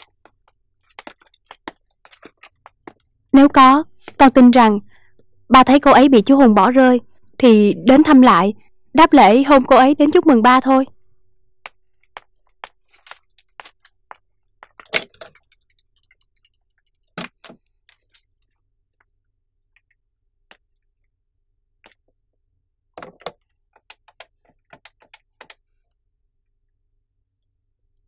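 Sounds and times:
clicks and knocks at a desk: 0:23.0 - 0:25.6.

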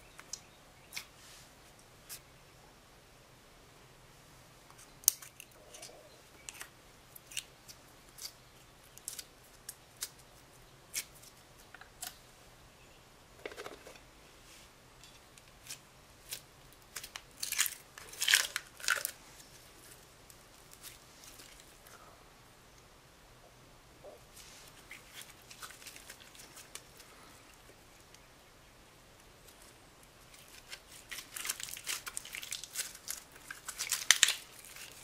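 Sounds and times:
plastic snaps and crackles: 0:30.4 - 0:35.0.

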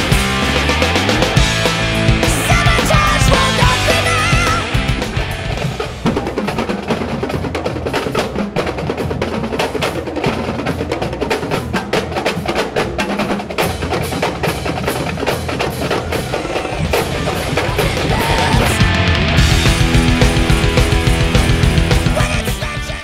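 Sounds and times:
marching drumline playing: 0:00.0 - 0:23.0.

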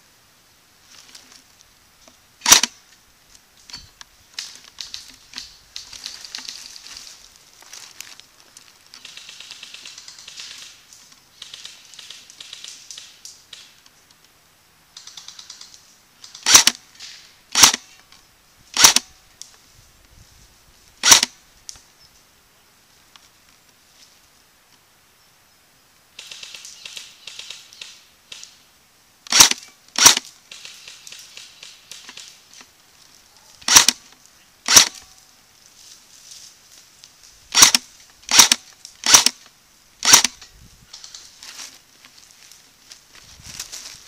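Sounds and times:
rustling and crackling: 0:00.8 - 0:14.3, 0:29.3 - 0:44.0
airsoft gun shots: 0:02.4 - 0:02.7, 0:16.4 - 0:16.8, 0:17.5 - 0:17.8, 0:18.8 - 0:19.1, 0:21.0 - 0:21.3, 0:29.3 - 0:30.8, 0:33.6 - 0:34.0, 0:34.7 - 0:35.0, 0:37.5 - 0:39.4, 0:40.0 - 0:40.4.

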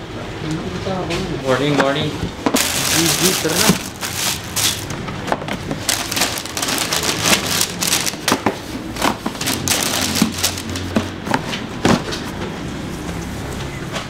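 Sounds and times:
wrapping paper rustling and crinkling: 0:02.5 - 0:05.0, 0:05.6 - 0:11.2.

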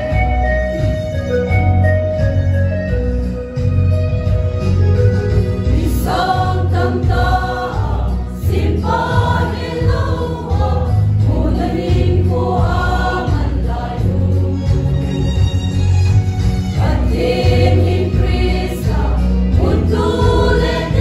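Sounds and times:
electronic organ: 0:00.0 - 0:06.9
choir singing a hymn: 0:05.7 - 0:15.5, 0:16.8 - 0:21.0.

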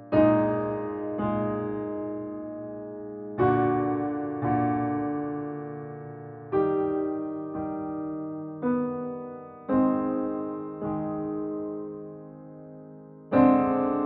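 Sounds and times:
slow soft piano chords: 0:00.0 - 0:14.0.

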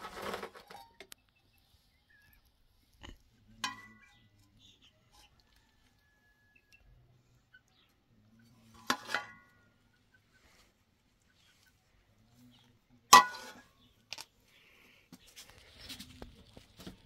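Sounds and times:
light utensil clatter: 0:03.0 - 0:04.5, 0:08.6 - 0:09.7, 0:13.1 - 0:14.2
metal spoon clanking on cookware: 0:03.6 - 0:04.2, 0:08.7 - 0:09.6, 0:13.1 - 0:13.7.

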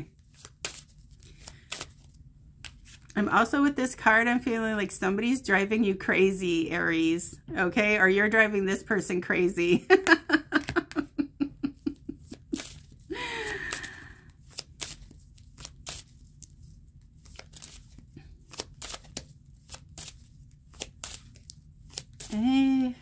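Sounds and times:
cards being shuffled: 0:00.0 - 0:03.2, 0:10.0 - 0:11.1, 0:11.9 - 0:23.0.

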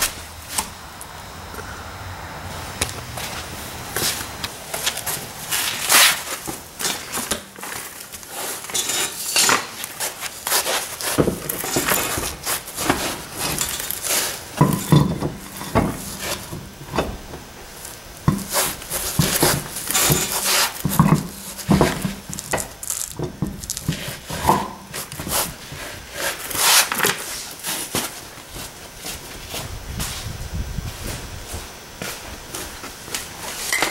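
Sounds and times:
metallic clinks and knocks: 0:33.7 - 0:33.9.

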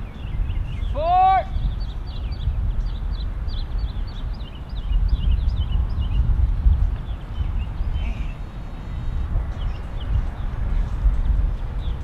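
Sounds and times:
low rumble of outdoor air: 0:00.0 - 0:12.0
small birds chirping: 0:00.0 - 0:12.0
drawn-out rising bird cry: 0:07.0 - 0:10.8.

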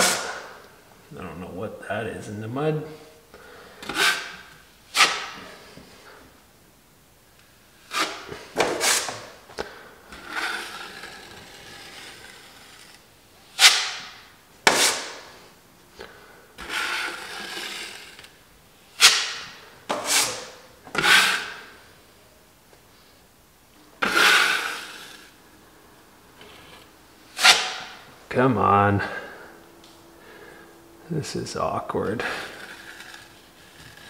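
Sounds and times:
drywall knife scraping wall: 0:00.0 - 0:00.6, 0:03.7 - 0:05.8, 0:07.8 - 0:09.4, 0:10.1 - 0:15.4, 0:16.6 - 0:18.4, 0:19.0 - 0:21.8, 0:24.0 - 0:25.4, 0:26.4 - 0:28.1, 0:32.2 - 0:34.0.

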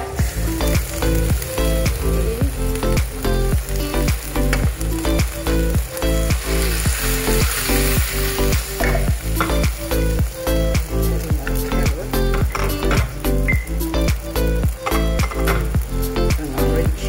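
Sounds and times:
background music with steady beat: 0:00.0 - 0:17.0
noodles sizzling in a wok: 0:00.0 - 0:17.0.

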